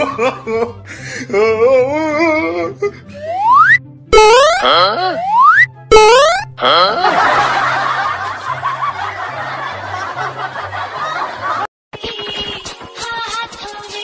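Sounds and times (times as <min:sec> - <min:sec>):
background music bass line: 0:03.1 - 0:07.1
rising whistle glide: 0:03.2 - 0:04.6, 0:05.2 - 0:06.4
sharp comic hit: 0:03.4 - 0:06.8
canned snickering laughter: 0:06.6 - 0:07.7.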